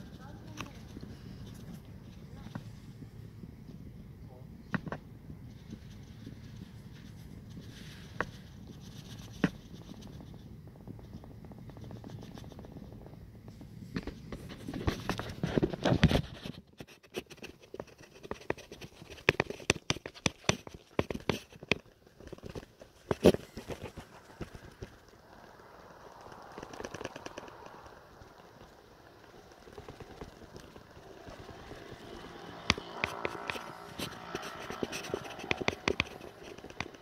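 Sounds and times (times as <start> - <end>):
phone handling clicks and scrapes: 31.2 - 37.0.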